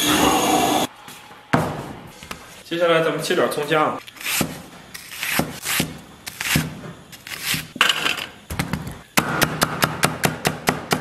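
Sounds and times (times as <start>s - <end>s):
cleaver slicing onion: 4.0s - 7.8s.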